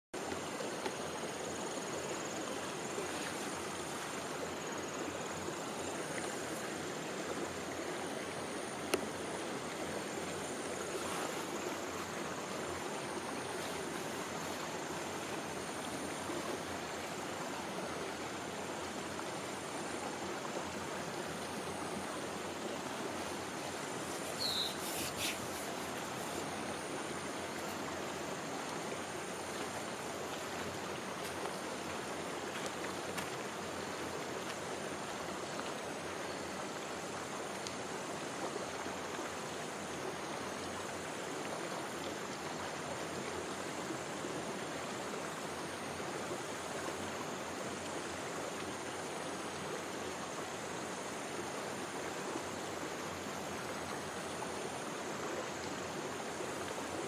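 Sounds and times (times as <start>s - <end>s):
running water: 0.0s - 57.0s
high insect trill: 0.4s - 35.0s.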